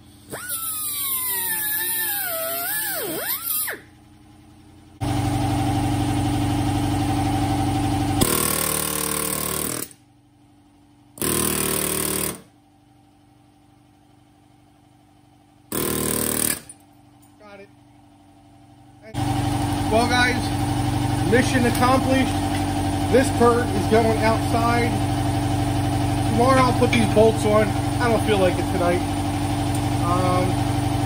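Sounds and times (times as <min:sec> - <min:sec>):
pneumatic air ratchet: 0:00.0 - 0:03.9, 0:08.2 - 0:10.0, 0:11.2 - 0:12.5, 0:15.7 - 0:16.8.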